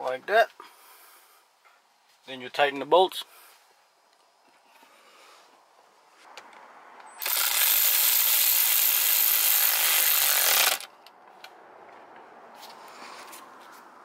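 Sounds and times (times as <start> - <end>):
power ratchet driving bolts: 7.2 - 10.9.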